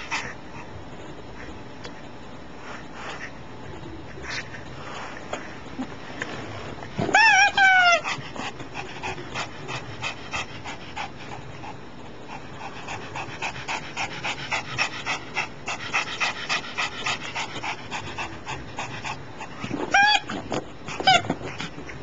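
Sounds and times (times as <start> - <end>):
dog panting: 7.9 - 22.0.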